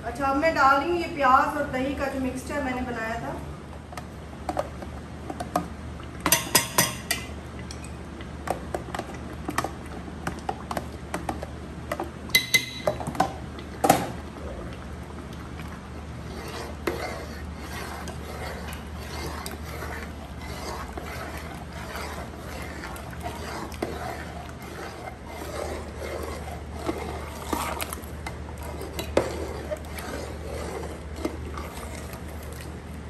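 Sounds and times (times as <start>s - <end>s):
ladle stirring thick curry: 12.9s - 32.8s.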